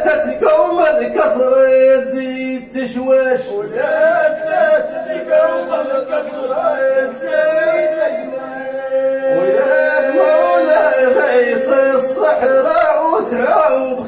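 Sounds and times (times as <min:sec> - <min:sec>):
man holding a long note: 0:09.3 - 0:11.6
man chanting a melody: 0:09.3 - 0:14.0.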